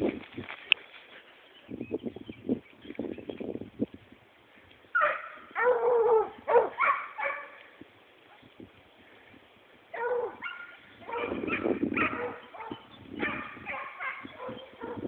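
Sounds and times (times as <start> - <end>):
hounds baying and yelping: 5.0 - 7.6, 9.9 - 15.0.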